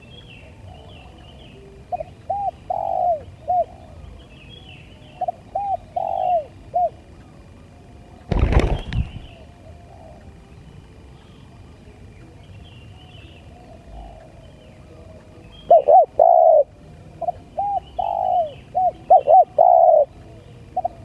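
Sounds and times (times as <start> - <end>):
dove cooing: 0.0 - 4.2, 5.0 - 7.1, 8.3 - 10.4, 13.5 - 21.0
small birds chirping: 0.0 - 21.0.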